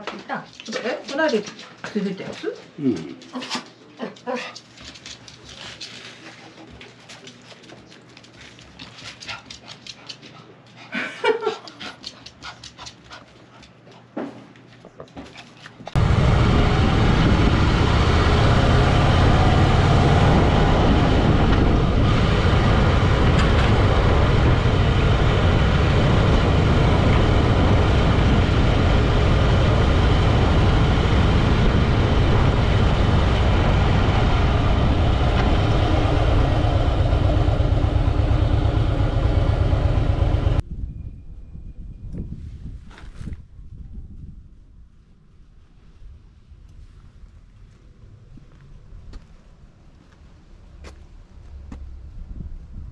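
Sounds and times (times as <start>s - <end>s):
motorcycle engine rumbling: 15.9s - 40.9s.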